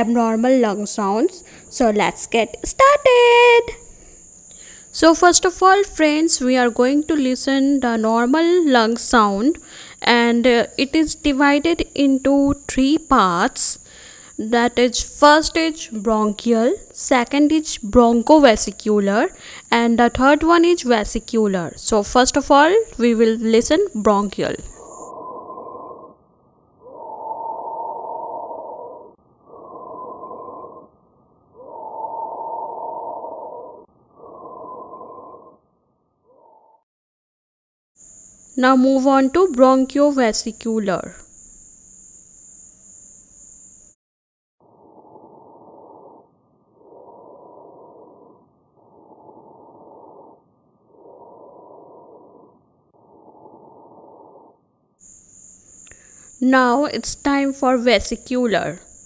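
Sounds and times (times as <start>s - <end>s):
high tone with hiss: 0.0s - 25.1s, 38.0s - 44.0s, 55.0s - 59.0s
breath sounds through stethoscope: 1.4s - 1.7s, 9.6s - 10.0s, 13.8s - 14.4s, 19.4s - 19.7s, 55.8s - 56.4s.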